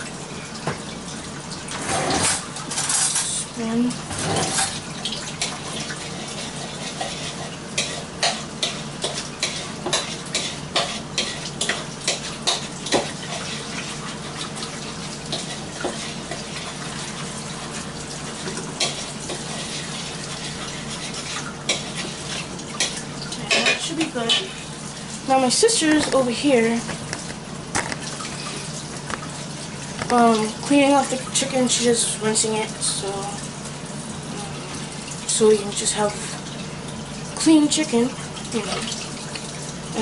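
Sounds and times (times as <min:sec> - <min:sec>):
water running in sink: 0:00.0 - 0:40.0
utensils clinking against dishes: 0:01.8 - 0:03.4, 0:22.8 - 0:24.6.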